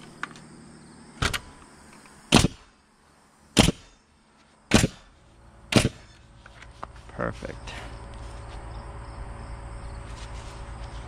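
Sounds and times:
pneumatic nailer firing: 0:02.3 - 0:02.7, 0:03.6 - 0:04.0, 0:04.7 - 0:05.1, 0:05.7 - 0:06.2.

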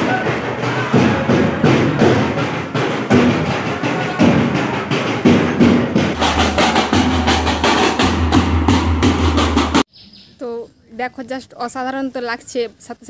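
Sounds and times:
bass drum strokes: 0:00.0 - 0:09.8
drum band playing: 0:00.0 - 0:09.9
snare drums beaten with sticks: 0:00.0 - 0:09.9.

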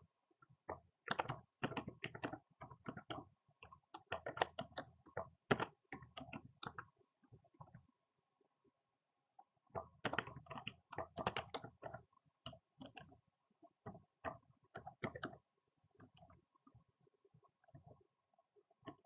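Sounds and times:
keyboard typing: 0:01.0 - 0:03.2, 0:03.9 - 0:06.8, 0:09.8 - 0:13.1, 0:13.8 - 0:15.4.

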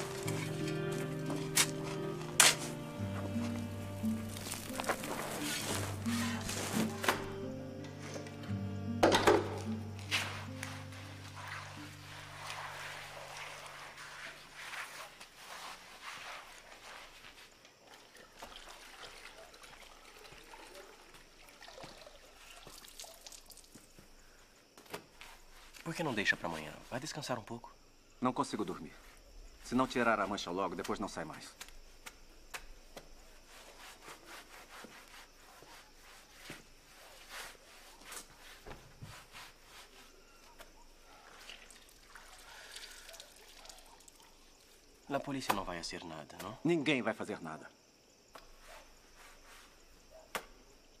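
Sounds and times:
wet scrubbing: 0:10.0 - 0:19.5
water trickling and splashing: 0:10.2 - 0:24.2, 0:41.0 - 0:45.3.

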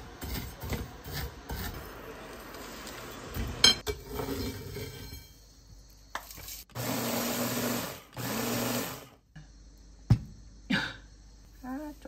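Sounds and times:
blender grinding salt: 0:06.7 - 0:09.2.

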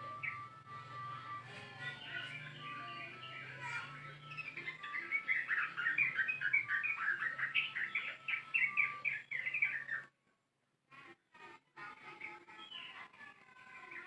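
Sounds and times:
bird chattering song: 0:00.0 - 0:00.5, 0:01.6 - 0:10.1, 0:12.2 - 0:14.0.

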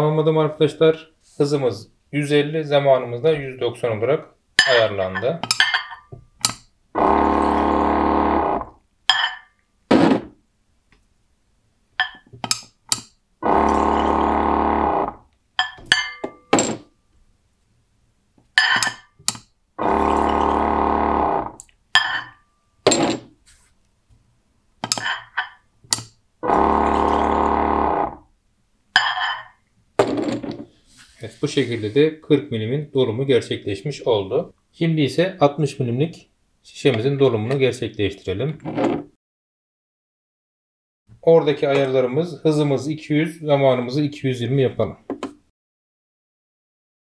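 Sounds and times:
glass bottles clinking: 0:04.6 - 0:06.2, 0:09.1 - 0:09.5, 0:12.0 - 0:12.3, 0:15.6 - 0:16.8, 0:18.6 - 0:19.1, 0:22.0 - 0:23.2, 0:24.8 - 0:25.6, 0:26.6 - 0:27.5, 0:29.0 - 0:30.5
pump motor whine: 0:07.0 - 0:08.7, 0:13.4 - 0:15.2, 0:19.8 - 0:21.6, 0:26.4 - 0:28.2.

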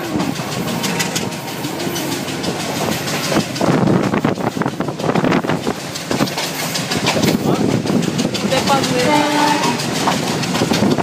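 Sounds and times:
train wheels clattering on track: 0:00.0 - 0:11.0.

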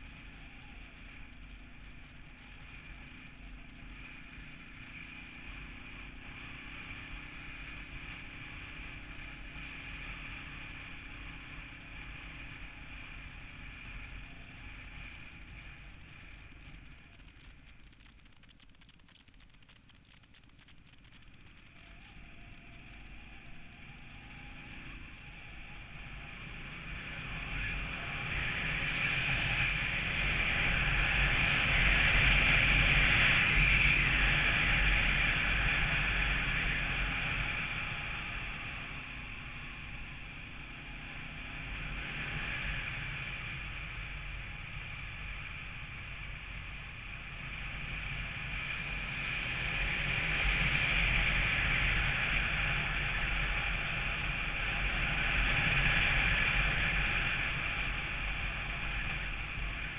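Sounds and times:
motorcycle engine: 0:00.0 - 0:59.9
road rumble: 0:00.0 - 0:59.9
wind rushing over microphone: 0:22.2 - 0:59.9.

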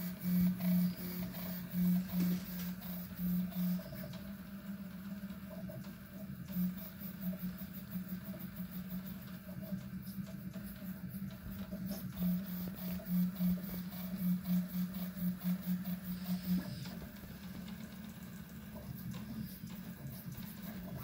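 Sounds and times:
three d printer motors humming: 0:00.0 - 0:21.0.

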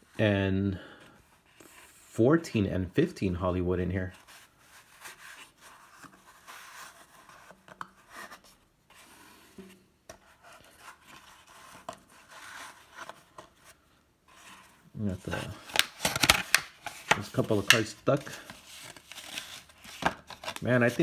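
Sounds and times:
cards sliding against each other: 0:04.2 - 0:21.0
cards clicking when set down: 0:15.6 - 0:18.0.

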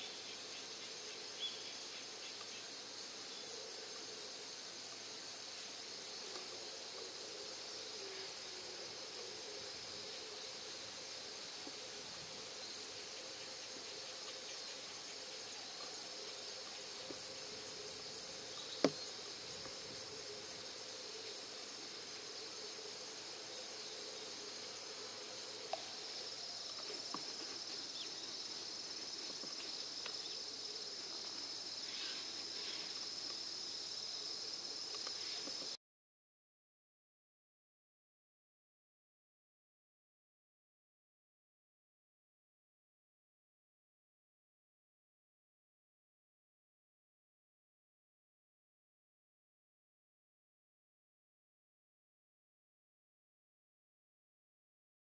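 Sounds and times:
insects pulsing chirp: 0:00.0 - 0:35.8
steady high insect buzz: 0:00.0 - 0:35.8.

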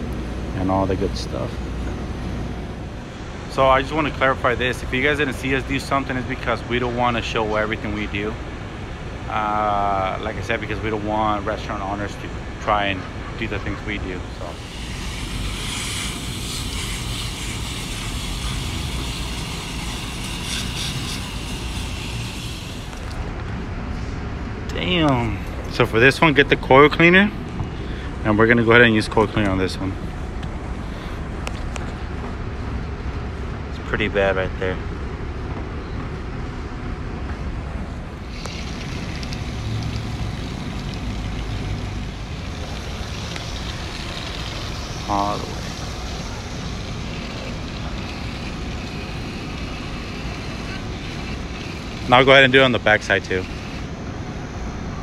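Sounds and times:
hose water spraying on metal fins: 0:14.4 - 0:23.2, 0:38.2 - 0:53.9.

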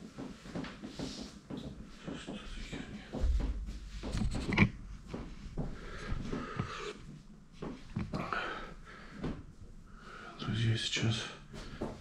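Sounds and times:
knocks bumps and rustles: 0:01.5 - 0:06.4.

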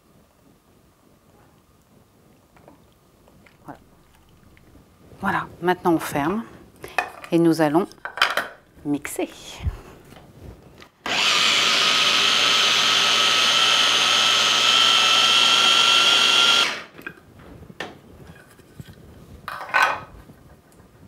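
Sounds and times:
electric chopper motor whine: 0:11.1 - 0:16.9.

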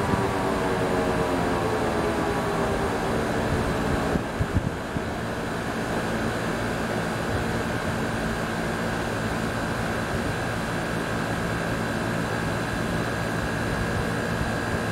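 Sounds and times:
mechanical siren winding down: 0:00.0 - 0:04.2.

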